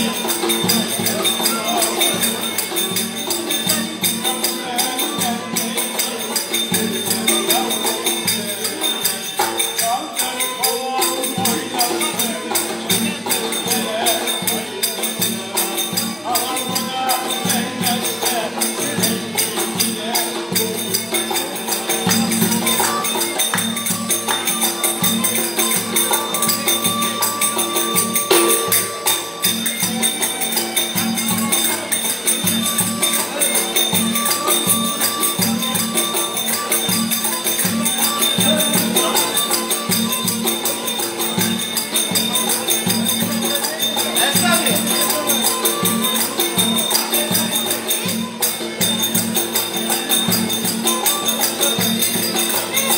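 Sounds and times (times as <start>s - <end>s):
bowed fiddle played quickly: 17.6s - 52.9s.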